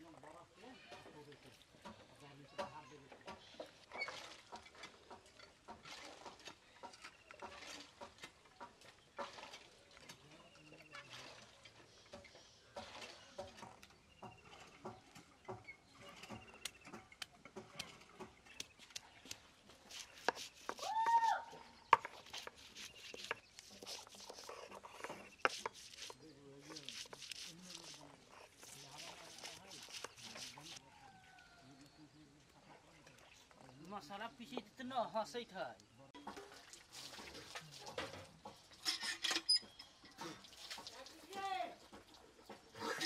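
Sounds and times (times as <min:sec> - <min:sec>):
stone knocking on grinding stone: 0:21.9 - 0:22.2
cloves being peeled: 0:22.0 - 0:30.8
light clicks and scrapes: 0:22.0 - 0:30.8.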